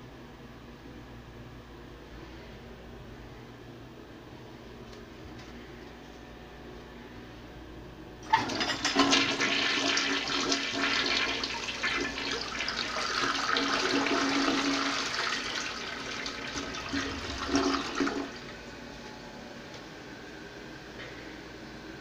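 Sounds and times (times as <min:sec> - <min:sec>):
toilet flushing: 0:08.2 - 0:18.8.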